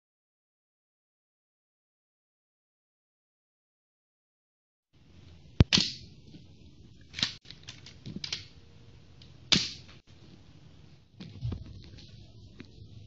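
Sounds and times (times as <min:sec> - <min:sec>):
toy pistol plastic snaps: 0:05.6 - 0:06.1, 0:07.1 - 0:08.5
mechanism clicks: 0:07.1 - 0:08.6.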